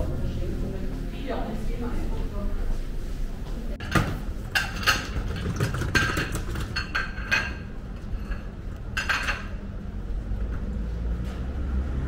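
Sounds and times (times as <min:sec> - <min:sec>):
steady low rumble: 0:00.0 - 0:03.8
dishes and cutlery clinking: 0:03.8 - 0:09.7.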